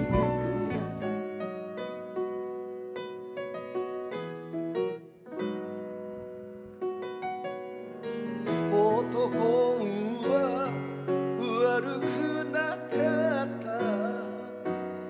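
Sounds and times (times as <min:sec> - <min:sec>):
piano ballad: 0:00.0 - 0:15.0
man singing with vibrato: 0:08.5 - 0:14.7.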